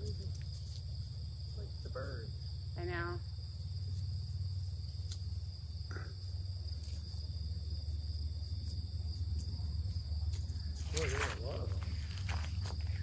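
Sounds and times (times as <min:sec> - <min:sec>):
crickets and insects trilling: 0:00.0 - 0:13.0.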